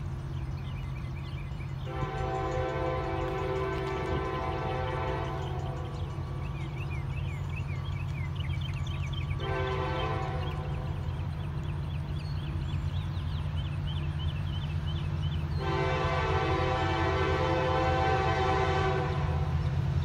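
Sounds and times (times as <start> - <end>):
birds chirping: 0.0 - 20.0
low rumble of diesel engines: 0.0 - 20.0
diesel locomotive horn blasts: 1.8 - 6.4, 9.3 - 11.3, 15.5 - 19.8.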